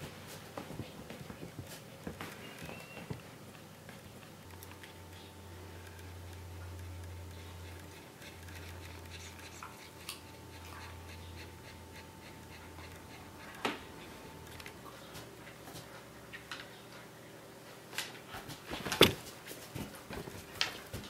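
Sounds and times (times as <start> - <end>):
dog panting: 6.7 - 14.5.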